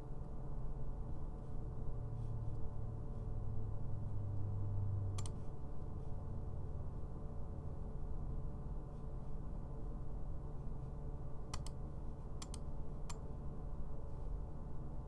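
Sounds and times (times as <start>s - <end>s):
low electrical hum: 0.0s - 15.0s
computer mouse click: 5.2s - 5.4s, 11.5s - 11.8s, 12.4s - 13.2s.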